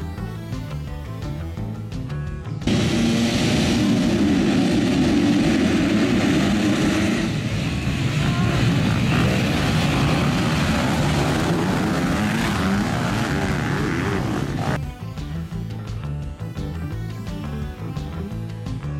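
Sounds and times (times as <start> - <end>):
motocross bikes revving and accelerating: 2.6 - 14.8.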